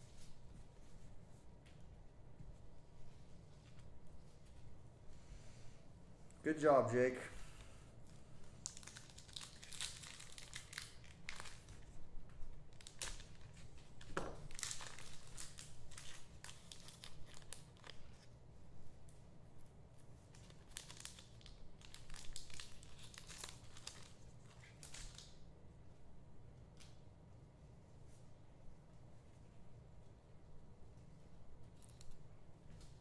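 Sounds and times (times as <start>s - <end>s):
card packs torn open: 8.6s - 11.7s, 14.4s - 18.0s, 20.4s - 25.3s.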